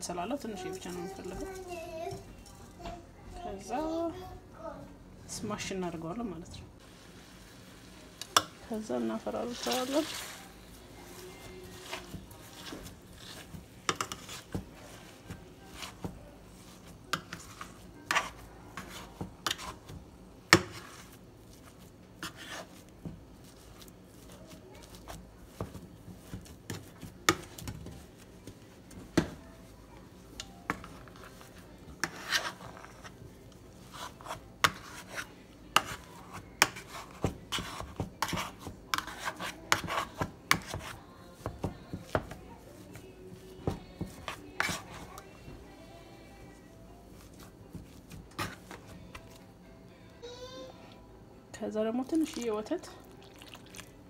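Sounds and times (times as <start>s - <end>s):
spoon knocking and scraping pot: 11.7s - 21.1s, 33.9s - 43.0s, 43.6s - 45.3s.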